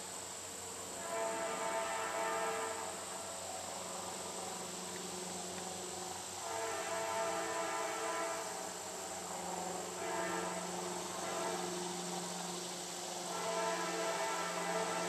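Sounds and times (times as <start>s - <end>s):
distant locomotive air horn: 0.8s - 3.4s, 6.3s - 15.0s.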